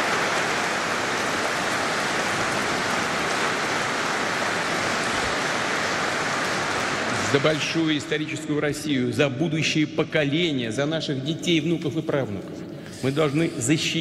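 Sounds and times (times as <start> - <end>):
large audience applauding: 0.0 - 8.4.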